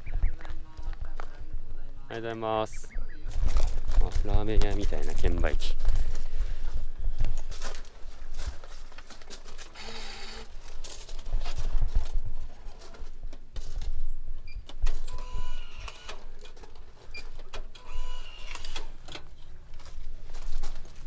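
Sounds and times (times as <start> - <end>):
electronic tones: 15.1 - 16.1.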